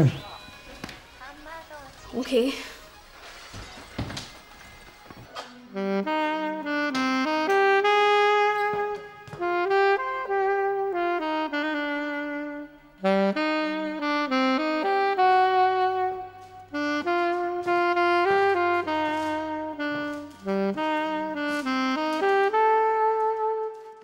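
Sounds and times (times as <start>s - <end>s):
saxophone playing jazzy melody: 5.3s - 24.0s.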